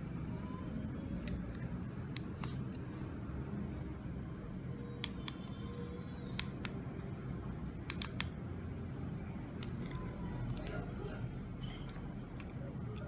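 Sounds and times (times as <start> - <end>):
steady low hum: 0.0 - 13.0
plastic clicks and taps: 7.8 - 8.4.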